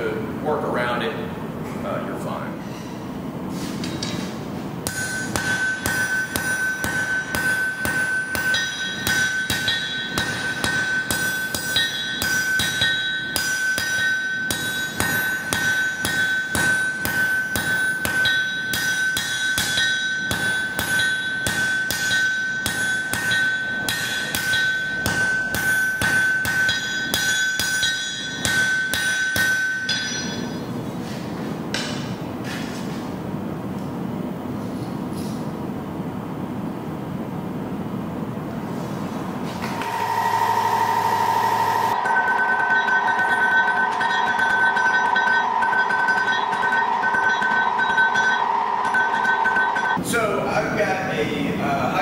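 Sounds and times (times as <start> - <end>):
hammer striking blade on anvil: 4.8 - 30.7, 31.7 - 32.2, 39.6 - 50.0
anvil ringing: 4.8 - 30.8, 39.7 - 50.0.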